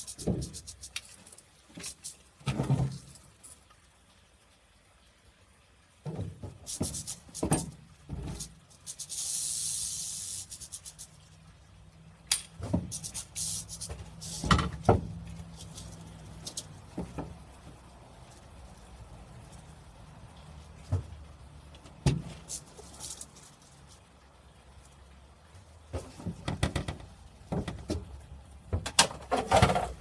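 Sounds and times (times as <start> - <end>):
rattlesnake rattle buzzing: 8.3 - 11.2.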